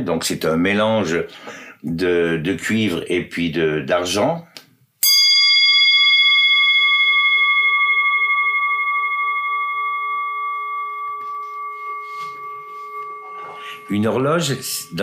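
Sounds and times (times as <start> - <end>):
clock bell ringing: 5.0 - 15.0.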